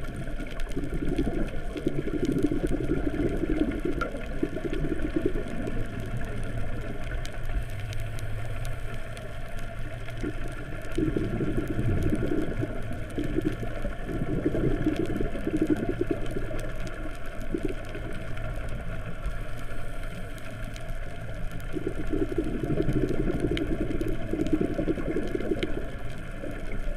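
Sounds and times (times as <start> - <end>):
diver's bubbles gurgling: 0.0 - 26.9
muffled underwater rumble: 0.0 - 26.9.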